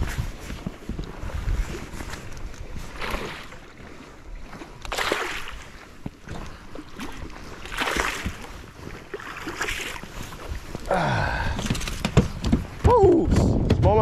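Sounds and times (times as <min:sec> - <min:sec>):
fish thrashing and splashing: 0:04.8 - 0:12.9.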